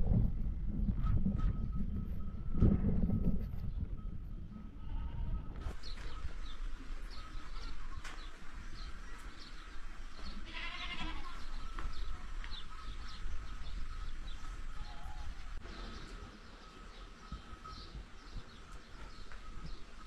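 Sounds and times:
farm animal calling: 0:04.7 - 0:20.0.

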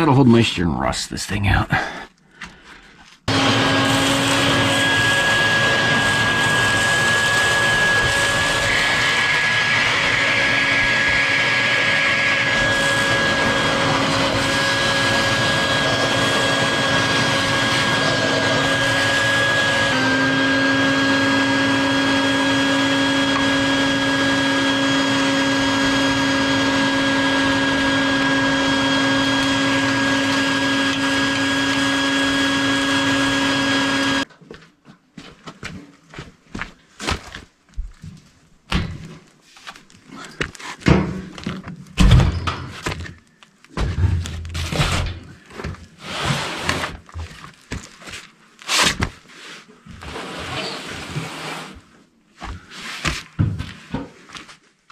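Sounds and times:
shop vacuum motor whine: 0:03.3 - 0:34.3.

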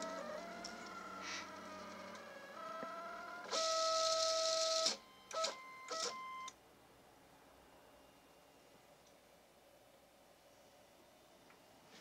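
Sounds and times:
stepper motors whining: 0:00.0 - 0:06.2.

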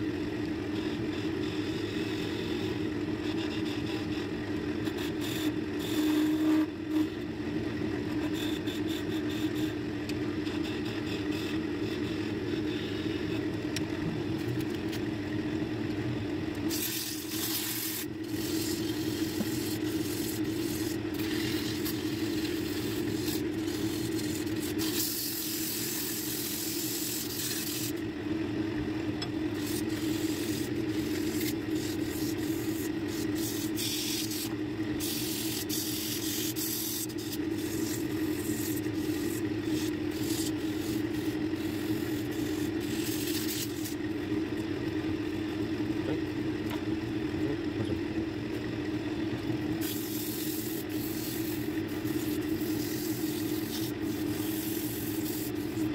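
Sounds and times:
wood lathe humming: 0:00.9 - 0:14.5, 0:15.6 - 0:45.9, 0:49.2 - 0:55.9
sandpaper hissing on wood: 0:16.7 - 0:28.0, 0:29.6 - 0:44.0, 0:49.8 - 0:55.9.

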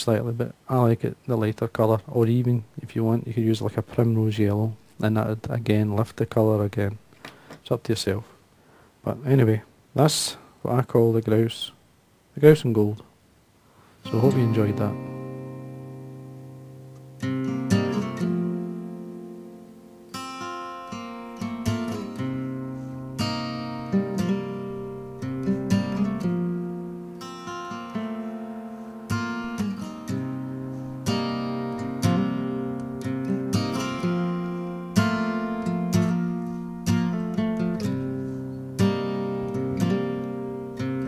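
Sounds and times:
acoustic guitar chords: 0:14.0 - 0:41.0.

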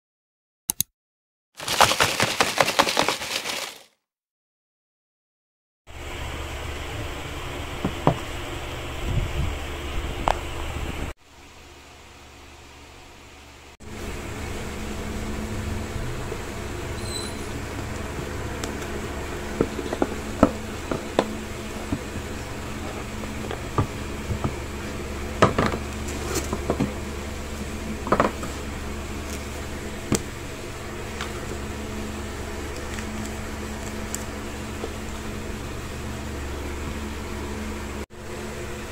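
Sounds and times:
cardboard box and paper rustling: 0:01.6 - 0:03.9, 0:25.6 - 0:27.0, 0:32.6 - 0:35.0
steady low hum: 0:05.9 - 0:38.9.

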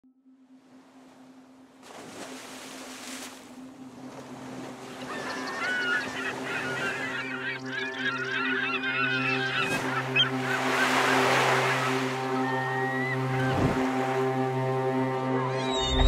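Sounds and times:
sea surf washing: 0:02.0 - 0:15.2
gulls calling: 0:03.8 - 0:16.0.

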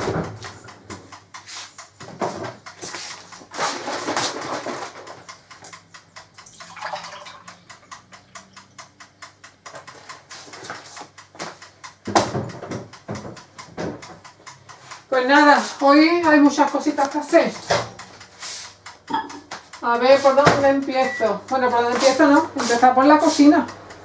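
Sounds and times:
dishes and utensils clicking: 0:19.0 - 0:21.2.

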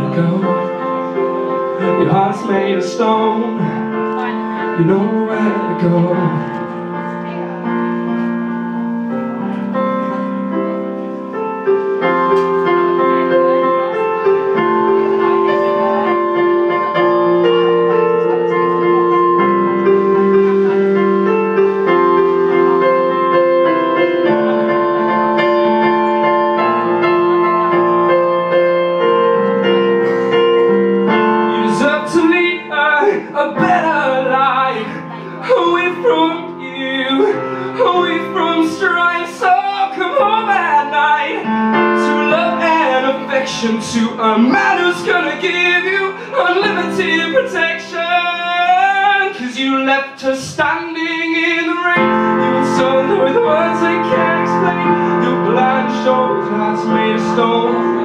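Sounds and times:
man singing: 0:00.0 - 0:07.0, 0:31.1 - 0:58.0
electric piano playing: 0:00.0 - 0:58.0.

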